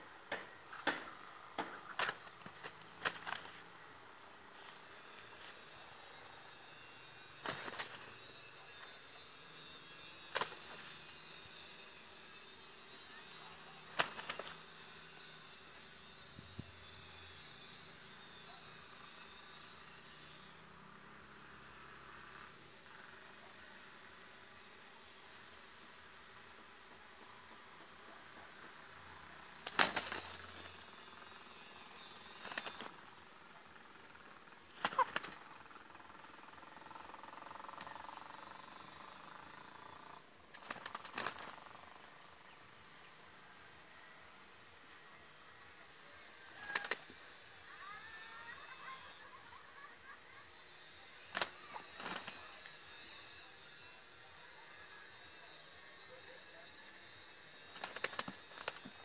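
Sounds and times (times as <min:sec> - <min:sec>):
rooster wings flapping: 0:01.8 - 0:03.6, 0:07.4 - 0:08.2, 0:10.3 - 0:11.0, 0:13.9 - 0:14.6, 0:29.6 - 0:30.9, 0:32.4 - 0:33.0, 0:34.7 - 0:35.6, 0:40.5 - 0:41.6, 0:46.5 - 0:47.1, 0:51.3 - 0:52.4, 0:57.7 - 0:59.0.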